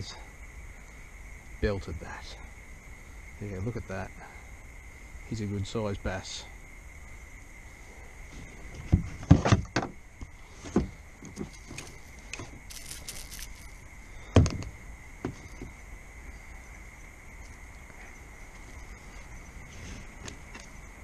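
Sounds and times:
short scraping rustle: 10.4 - 13.8.

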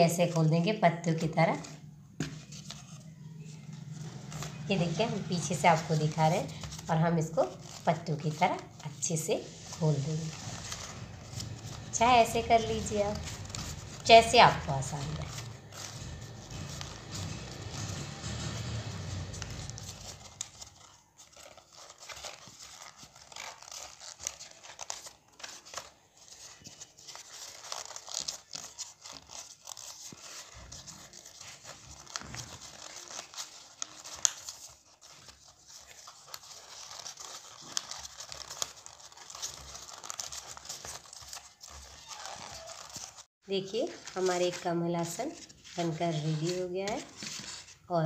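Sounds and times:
stiff paper rustling: 0.0 - 47.9
sharp paper crackles: 1.5 - 47.9.

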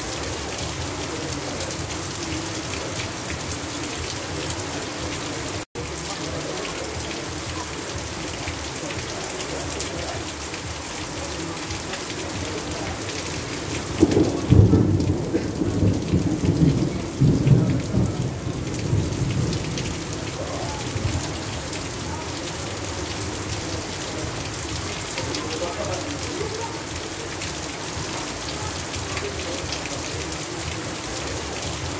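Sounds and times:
heavy rain: 0.0 - 31.9
water streaming off a roof: 0.0 - 31.9
thunder rolling: 13.8 - 21.4.

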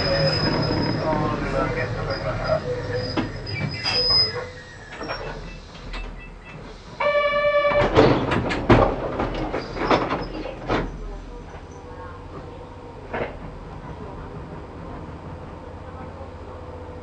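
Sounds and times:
train wheels squealing: 0.0 - 7.9.

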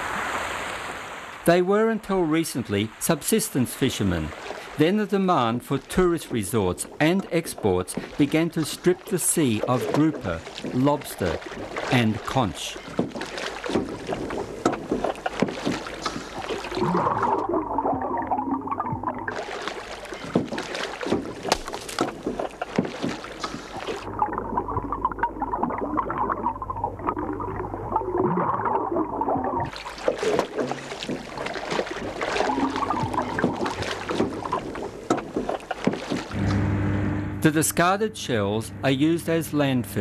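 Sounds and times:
water splashing beside boat: 0.0 - 36.7
low steady hum: 24.1 - 29.7, 36.3 - 40.0.

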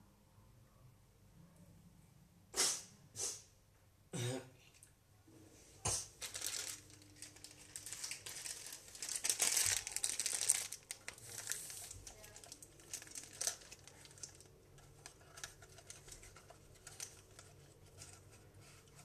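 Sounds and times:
packaging crinkling and rustling: 6.2 - 19.0.

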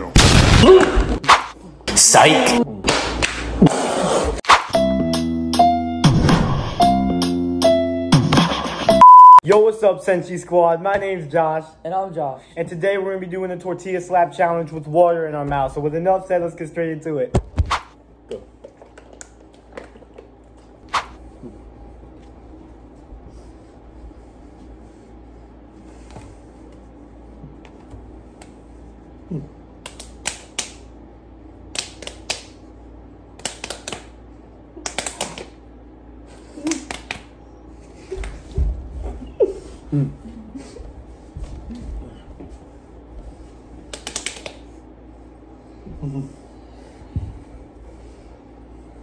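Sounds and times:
low room hum: 0.0 - 4.4, 8.6 - 49.0
sharp hand slaps: 1.2 - 1.6, 2.8 - 3.5, 17.6 - 17.9, 20.9 - 21.2, 29.8 - 30.8, 33.4 - 34.1, 34.8 - 35.6, 36.6 - 37.3, 43.9 - 44.6.

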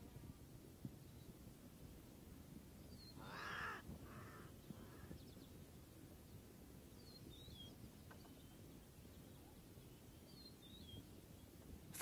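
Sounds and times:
harsh rasping animal calls: 3.2 - 4.4.

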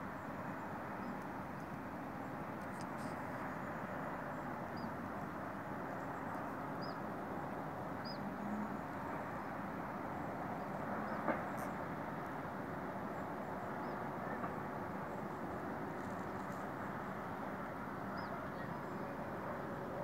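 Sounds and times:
distant traffic hum: 0.0 - 20.0
faint click: 2.6 - 3.2.

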